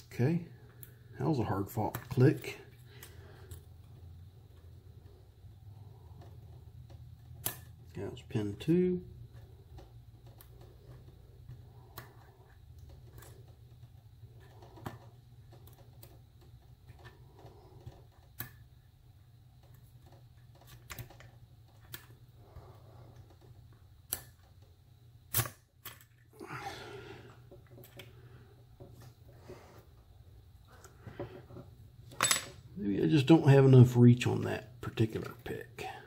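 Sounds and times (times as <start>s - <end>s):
low steady hum: 0.0s - 36.0s
small metallic clicks: 23.2s - 24.6s.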